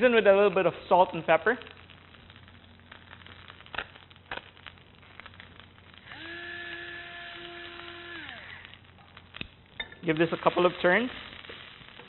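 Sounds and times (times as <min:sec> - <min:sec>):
peppercorns being ground: 0:05.1 - 0:08.8
pepper mill motor whine: 0:06.0 - 0:08.8.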